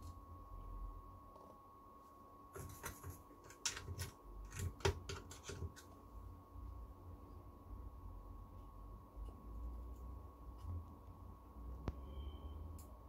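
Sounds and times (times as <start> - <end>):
faint steady hum: 0.0 - 13.0
tool scraping circuit board: 2.6 - 5.9.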